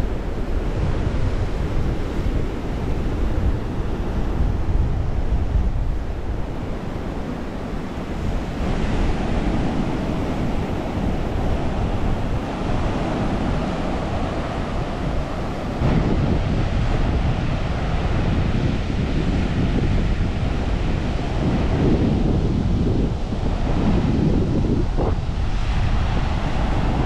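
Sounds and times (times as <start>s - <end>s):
sea surf: 0.0s - 27.0s
wind buffeting microphone: 0.0s - 27.0s.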